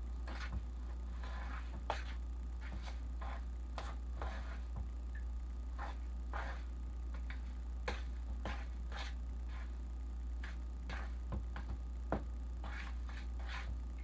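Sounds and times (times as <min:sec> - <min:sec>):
steady low hum: 0:00.0 - 0:14.0
utensil scraping mixing bowl: 0:00.2 - 0:04.8.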